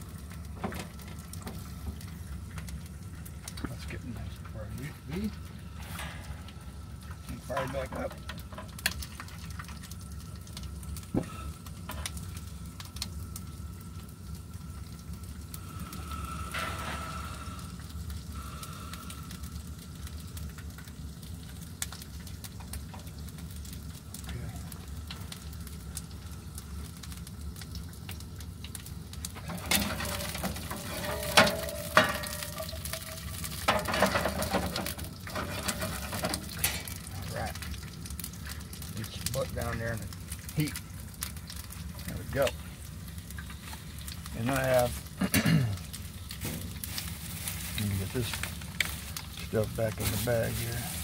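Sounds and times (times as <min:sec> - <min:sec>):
gas burner rumble: 0:00.0 - 0:51.0
vegetables sizzling in a frying pan: 0:00.0 - 0:51.0
metal tongs clinking on pan: 0:29.6 - 0:36.9.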